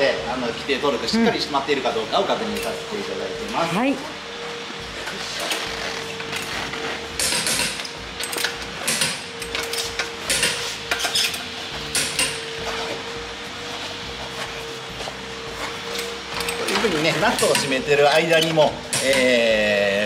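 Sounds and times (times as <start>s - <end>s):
steady hum: 0.0s - 20.0s
torque wrench clicking on wheel nuts: 5.4s - 12.4s.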